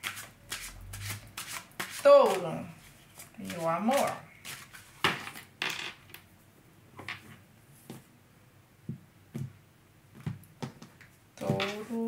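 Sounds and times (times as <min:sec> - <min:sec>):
cards brushing and rustling: 0:00.0 - 0:05.5.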